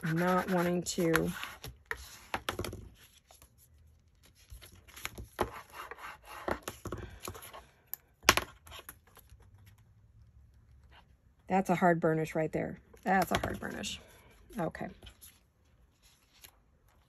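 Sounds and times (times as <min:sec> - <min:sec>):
bone folder scraping paper: 0:00.0 - 0:02.4.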